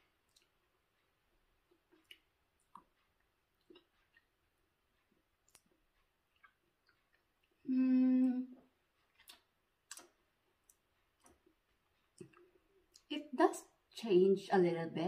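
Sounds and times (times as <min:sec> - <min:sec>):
woman humming: 0:07.6 - 0:08.6.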